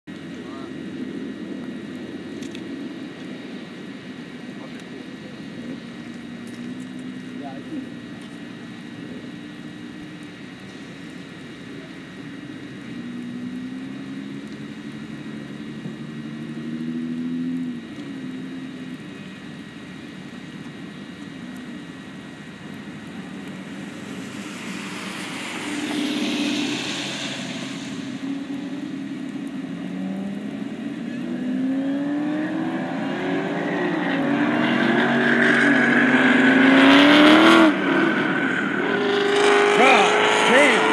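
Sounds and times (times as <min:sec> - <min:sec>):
engines idling and revving: 0:00.0 - 0:40.9
cars accelerating hard: 0:10.7 - 0:19.1, 0:21.6 - 0:40.9
burst of hiss: 0:24.0 - 0:28.2.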